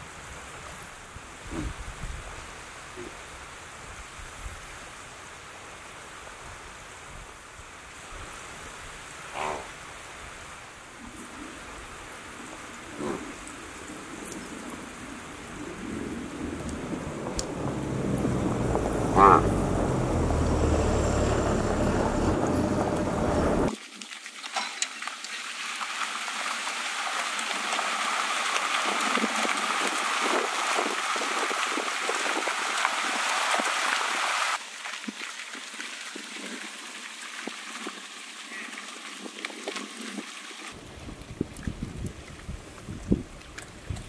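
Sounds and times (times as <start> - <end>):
low rumble: 16.4 - 23.7
loud rising tone: 17.5 - 23.7
water gushing from a chute: 23.0 - 44.0.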